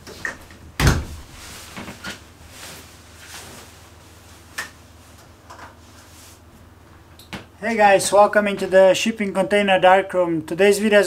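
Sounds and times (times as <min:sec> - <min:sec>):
nylon jacket rustling: 0:01.1 - 0:05.1.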